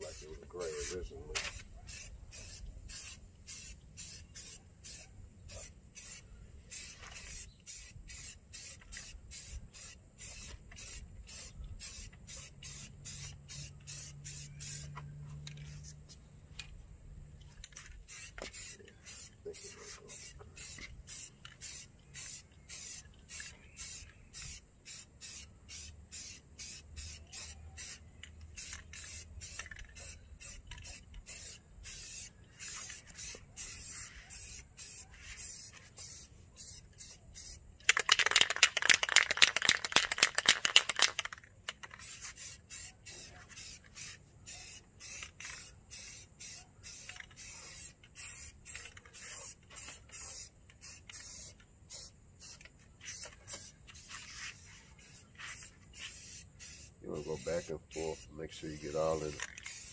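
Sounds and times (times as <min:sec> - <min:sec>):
spray can rattling: 0:00.0 - 0:16.2, 0:17.5 - 0:59.9
spray paint hissing: 0:00.0 - 0:16.2, 0:17.6 - 0:59.9.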